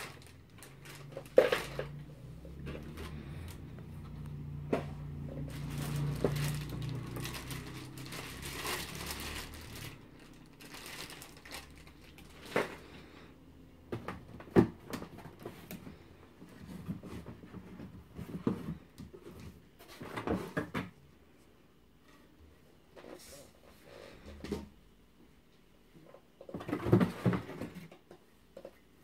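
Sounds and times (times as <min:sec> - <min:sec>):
plastic wrapping crinkling: 0:00.0 - 0:03.8, 0:05.2 - 0:12.8
cardboard rustling: 0:00.0 - 0:12.9.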